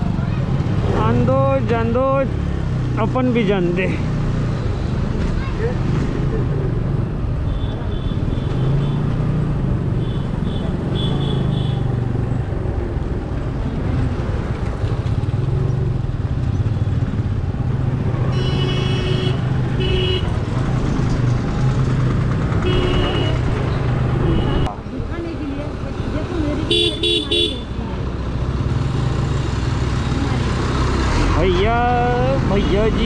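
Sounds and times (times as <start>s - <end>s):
wind and road noise: 0.0s - 33.0s
vehicle horn honking: 18.3s - 20.4s, 22.6s - 23.5s, 26.7s - 27.7s.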